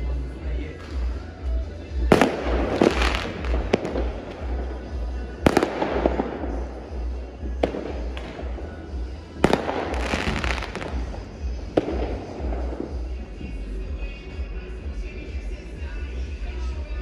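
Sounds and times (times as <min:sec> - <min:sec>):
firework crackling: 0:00.0 - 0:17.0
firework bangs: 0:01.9 - 0:13.6.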